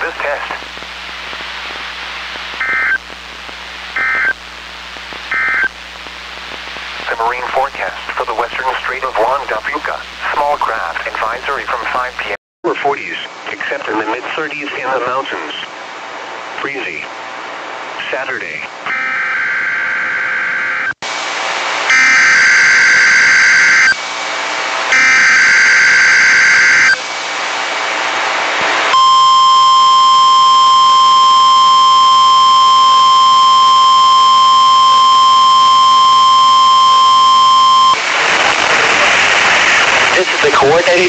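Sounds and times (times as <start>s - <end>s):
data bursts over radio: 0.0s - 15.6s, 31.6s - 41.0s
radio static hiss: 0.0s - 18.9s, 21.1s - 41.0s.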